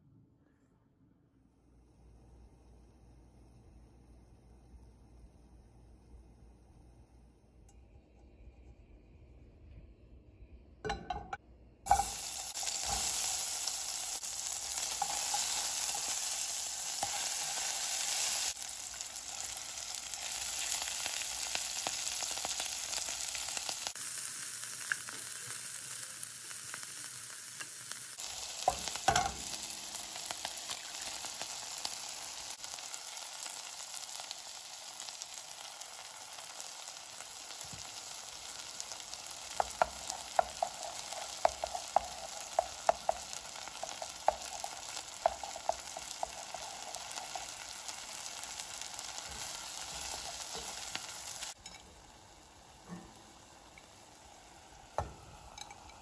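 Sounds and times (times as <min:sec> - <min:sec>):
food sizzling in oil: 0:11.9 - 0:56.0.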